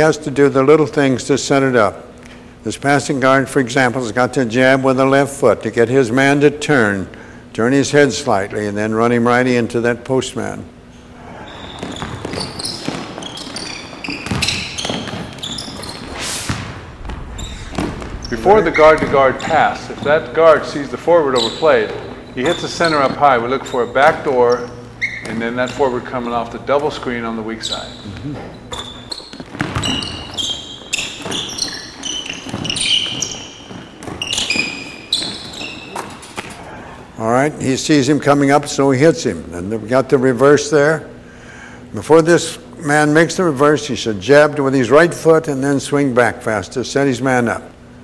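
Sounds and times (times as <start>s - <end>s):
sneakers squeaking: 10.7s - 37.2s
basketball bouncing on wood floor: 11.5s - 20.4s, 28.8s - 36.5s
footfall thuds: 14.2s - 20.4s.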